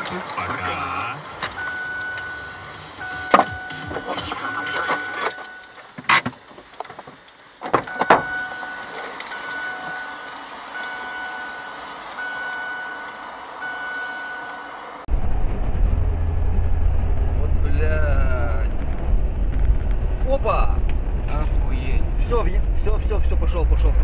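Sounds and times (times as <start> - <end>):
electronic beeping: 1.6 - 5.8, 7.9 - 14.6.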